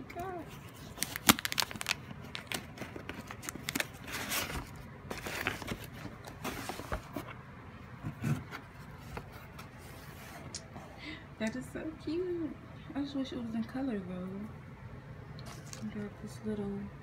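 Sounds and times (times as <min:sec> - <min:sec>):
cardboard rustling and scraping: 0:00.2 - 0:07.4, 0:08.0 - 0:10.5.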